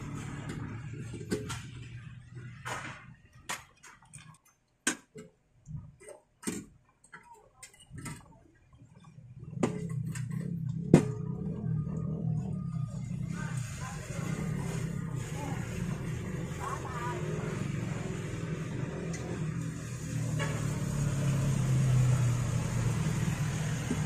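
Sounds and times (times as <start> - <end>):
low steady hum: 7.6 - 17.6.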